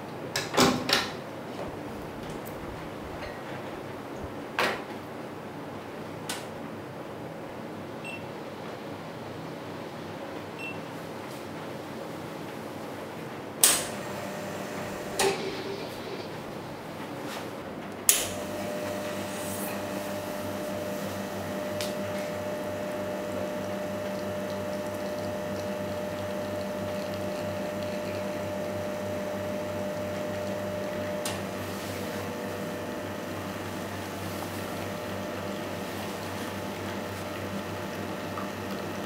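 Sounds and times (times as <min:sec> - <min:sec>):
espresso machine pump hum: 0:13.9 - 0:17.0, 0:18.3 - 0:39.0.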